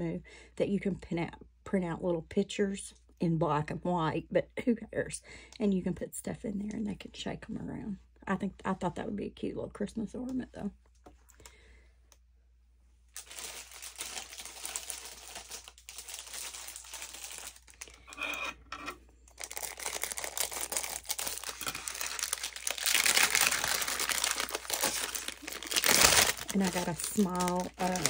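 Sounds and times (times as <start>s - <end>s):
plastic bag crinkling: 13.1s - 18.2s, 19.3s - 28.0s.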